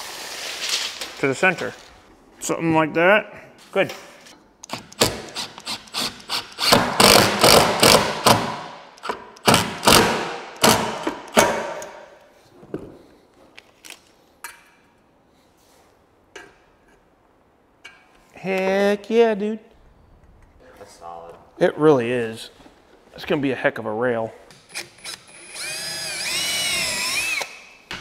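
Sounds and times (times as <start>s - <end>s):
impact driver driving screws: 4.6s - 11.9s, 24.5s - 27.7s.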